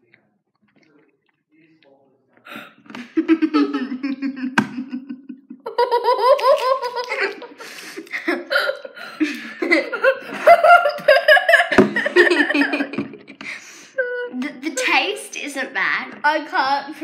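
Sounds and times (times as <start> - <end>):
girls laughing: 2.9 - 14.4.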